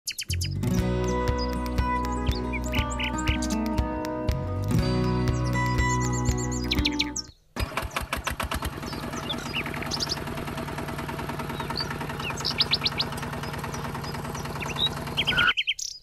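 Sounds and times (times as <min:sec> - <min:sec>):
birds chirping: 0:00.1 - 0:04.0, 0:04.8 - 0:16.0
tractor engine chugging: 0:07.6 - 0:15.5.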